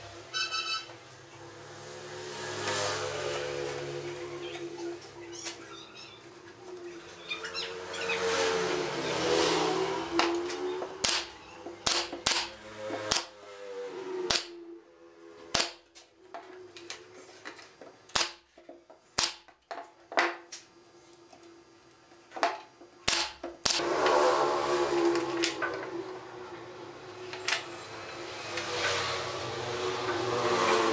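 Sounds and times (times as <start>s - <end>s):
nail gun firing into wood: 11.0s - 13.3s, 14.3s - 14.5s, 15.5s - 15.8s, 18.1s - 18.5s, 19.2s - 19.5s, 23.0s - 23.8s.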